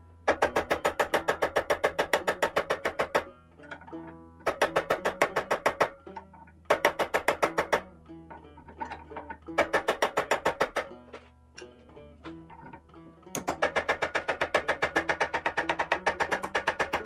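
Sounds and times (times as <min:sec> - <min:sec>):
rapid hammer blows on metal: 0:00.3 - 0:03.3, 0:04.4 - 0:06.0, 0:13.4 - 0:17.0.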